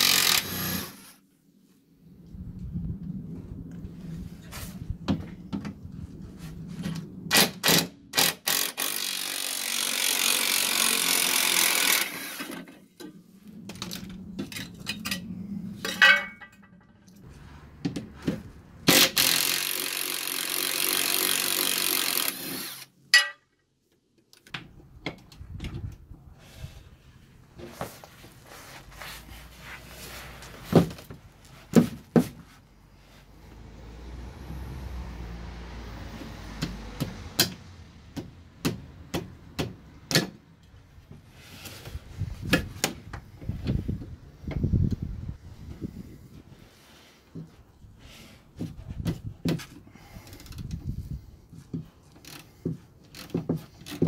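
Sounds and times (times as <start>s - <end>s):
metal clinks and knocks: 13.9s - 17.2s.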